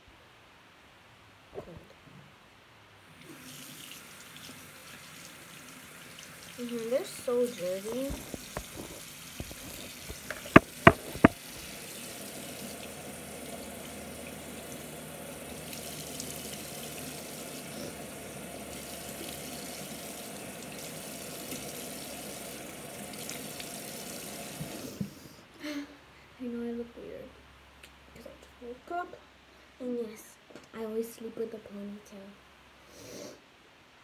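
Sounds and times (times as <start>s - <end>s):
tap running into sink: 7.9s - 11.7s
sharp knocks: 8.1s - 11.4s.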